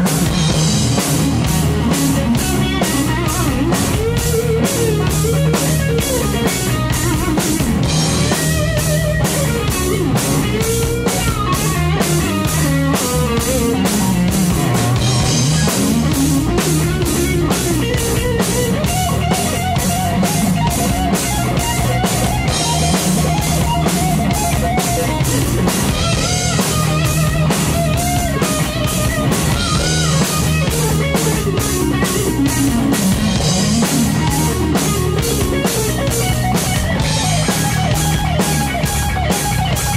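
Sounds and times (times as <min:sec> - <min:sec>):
bass guitar: 0:00.0 - 0:39.9
drum kit beat: 0:00.0 - 0:39.9
electric guitar lead: 0:00.0 - 0:39.9.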